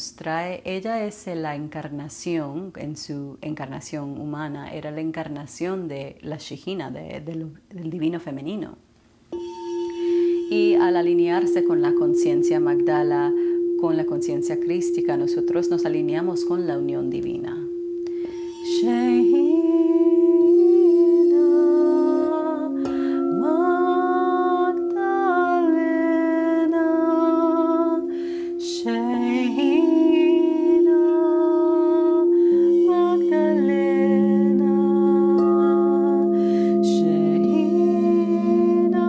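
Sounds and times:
singing bowl ringing: 9.3 - 39.0
woman chanting: 10.2 - 39.0.

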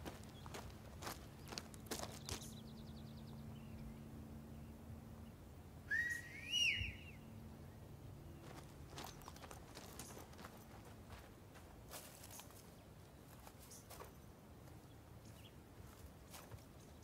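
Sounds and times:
footstep on gravel: 0.0 - 2.6, 8.4 - 14.8
person whistling: 5.9 - 7.1.

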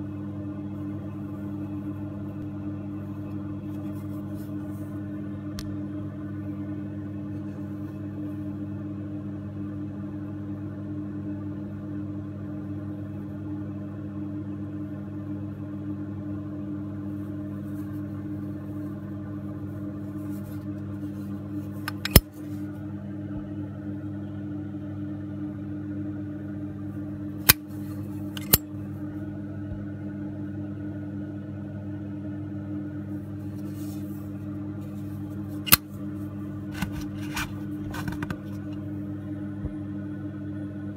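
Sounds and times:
lighter lid metallic clink: 21.9 - 22.2, 28.4 - 28.6
lighter clicks and taps: 28.4 - 28.6.

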